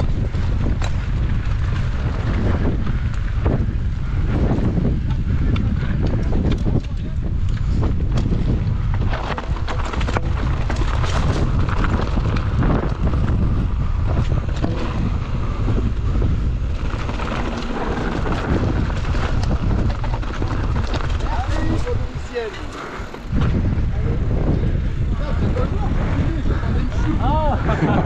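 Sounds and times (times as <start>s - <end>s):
bike clicks and knocks: 0.0s - 22.0s
wind buffeting microphone: 0.0s - 28.0s.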